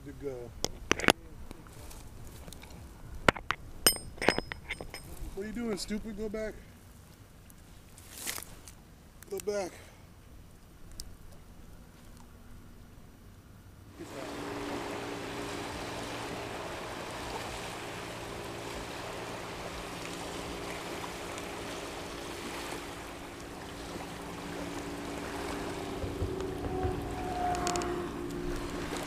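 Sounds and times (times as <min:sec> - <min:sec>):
low motor hum: 0:13.8 - 0:29.0
small waves lapping: 0:13.8 - 0:29.0
wind noise: 0:19.8 - 0:29.0.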